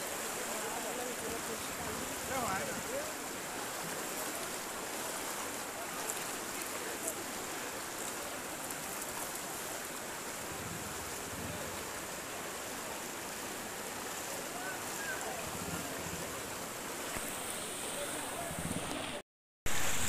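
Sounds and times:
floodwater rushing: 0:00.0 - 0:20.0.

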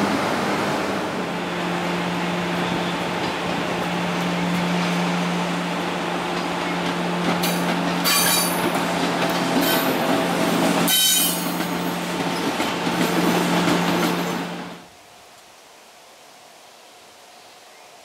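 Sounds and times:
electric locomotive humming: 0:00.0 - 0:14.9
train wheels squealing: 0:08.0 - 0:08.6, 0:10.9 - 0:11.6.

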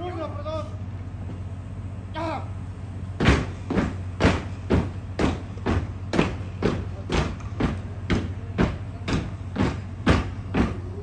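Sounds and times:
boots stamping in unison: 0:03.2 - 0:11.0.

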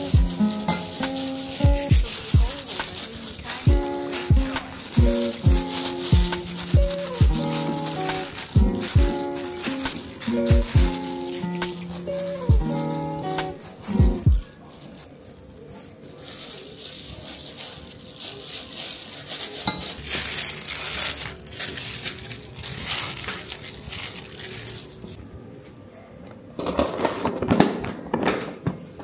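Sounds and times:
plastic glove crinkling: 0:00.0 - 0:25.2.

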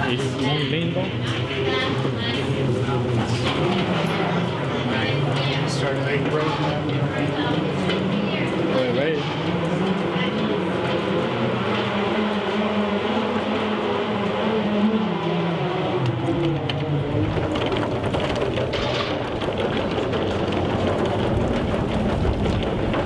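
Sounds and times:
ferry engines humming: 0:00.0 - 0:23.0
wind buffeting microphone: 0:16.1 - 0:23.0.

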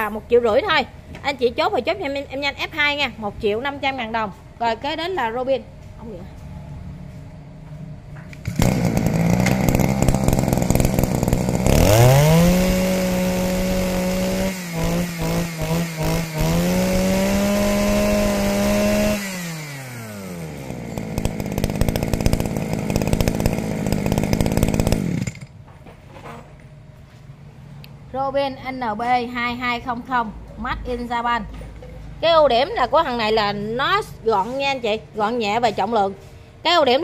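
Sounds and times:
brush-cutter engine revving: 0:08.3 - 0:25.5.

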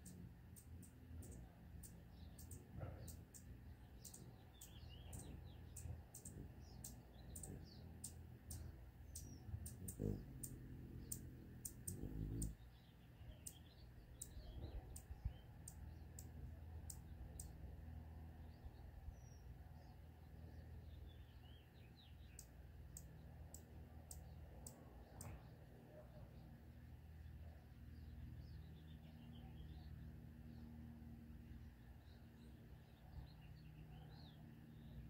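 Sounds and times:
hummingbird chicks ticking calls: 0:00.0 - 0:17.7, 0:20.9 - 0:25.7.

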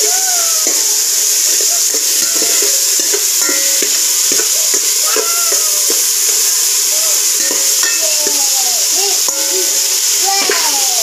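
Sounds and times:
food sizzling in hot oil: 0:00.0 - 0:11.0
metal spatula scraping pot: 0:01.6 - 0:09.5.

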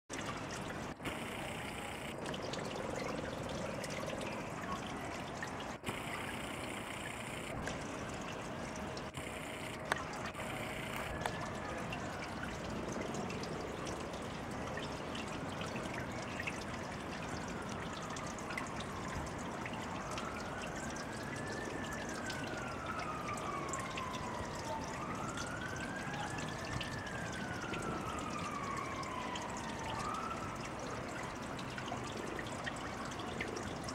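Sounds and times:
fountain splashing water: 0:00.1 - 0:33.9
siren wailing: 0:01.0 - 0:02.2, 0:05.7 - 0:13.0, 0:17.2 - 0:31.4.

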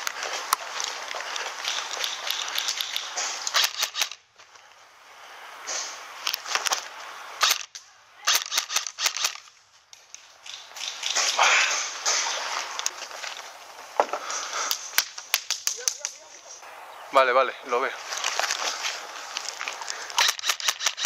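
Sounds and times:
airsoft gunshots cracking: 0:01.7 - 0:04.2, 0:07.4 - 0:09.5, 0:20.2 - 0:21.0.

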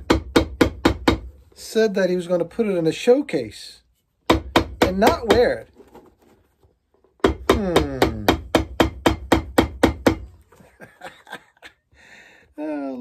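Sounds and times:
hammer beating shoe sole on metal: 0:04.2 - 0:05.6, 0:07.2 - 0:10.3.

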